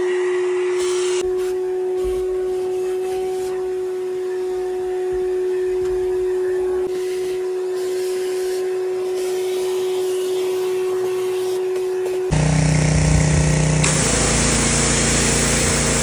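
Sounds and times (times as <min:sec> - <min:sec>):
shop vacuum whine: 0:00.0 - 0:16.0
pressure washer: 0:00.1 - 0:01.2, 0:12.3 - 0:16.0.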